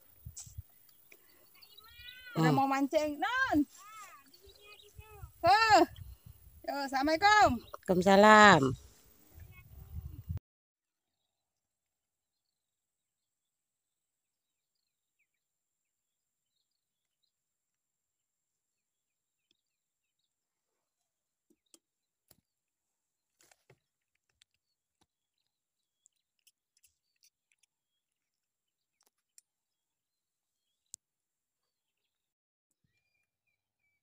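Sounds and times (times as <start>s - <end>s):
faint bird chirps: 0.0s - 6.6s, 32.8s - 34.0s.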